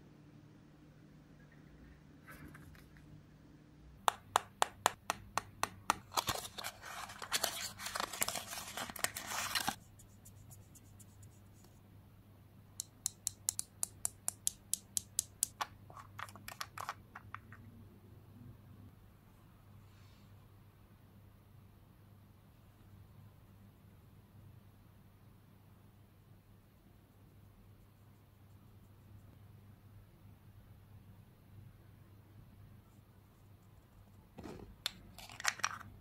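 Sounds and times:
packaging crackling: 0:06.0 - 0:09.8, 0:35.1 - 0:35.8.

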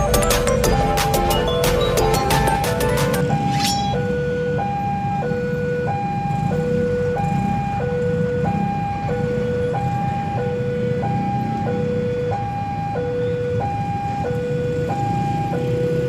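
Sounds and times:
level-crossing two-note alarm: 0:00.0 - 0:08.9
low rumble of road traffic: 0:00.0 - 0:16.0.

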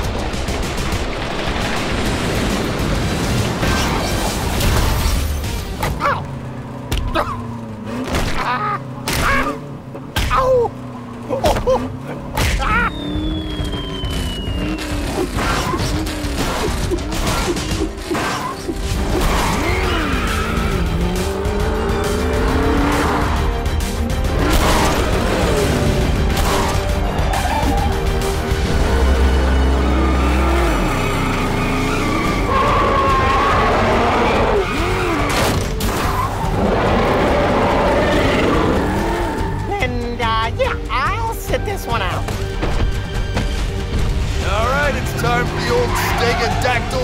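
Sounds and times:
background music: 0:00.0 - 0:47.0
race car engines revving: 0:05.4 - 0:41.0, 0:42.2 - 0:47.0
tires squealing: 0:05.7 - 0:40.2, 0:44.4 - 0:47.0
high falling whistle: 0:12.8 - 0:15.0.

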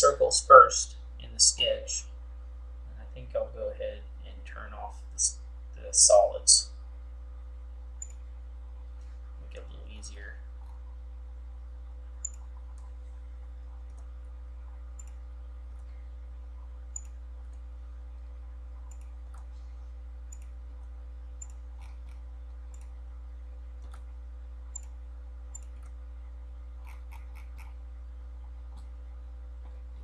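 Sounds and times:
steady low hum: 0:00.0 - 0:30.0
computer mouse clicks: 0:08.0 - 0:08.2, 0:12.2 - 0:13.0, 0:15.0 - 0:15.9, 0:16.9 - 0:17.6, 0:18.8 - 0:19.5, 0:20.3 - 0:20.6, 0:21.4 - 0:23.0, 0:23.8 - 0:24.1, 0:24.7 - 0:26.0.

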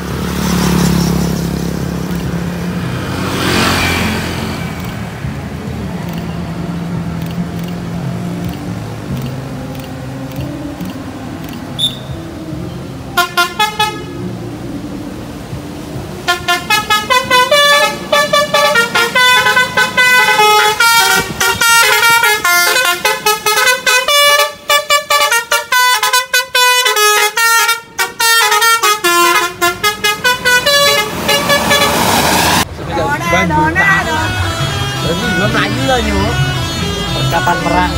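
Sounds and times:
bus horn playing a melody: 0:13.1 - 0:14.5, 0:16.2 - 0:32.5, 0:33.3 - 0:37.9.

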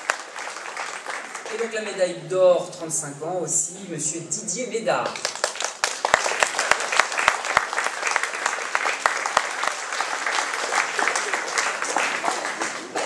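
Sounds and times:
audience applauding: 0:00.0 - 0:02.0, 0:05.0 - 0:13.0
sharp loud claps: 0:05.0 - 0:13.0.

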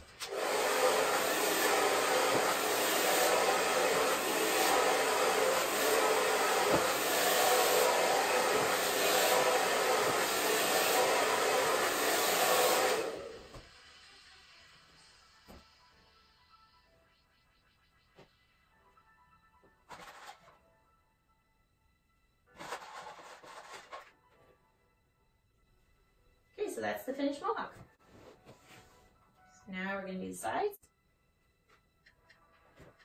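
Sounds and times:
hair dryer blowing: 0:00.0 - 0:14.1.

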